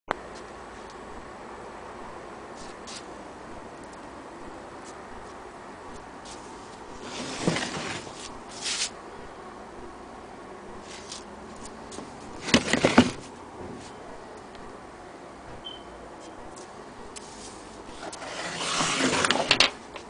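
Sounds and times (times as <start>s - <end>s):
handling noise rubbing and scraping: 4.8s - 9.0s, 10.8s - 14.0s, 16.6s - 20.0s.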